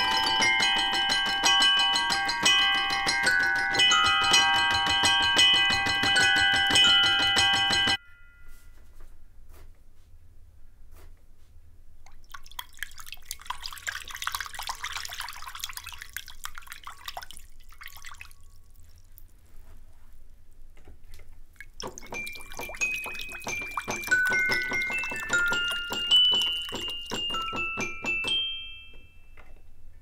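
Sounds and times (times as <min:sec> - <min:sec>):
metallic toy piano notes: 0:00.0 - 0:08.8, 0:22.0 - 0:30.0.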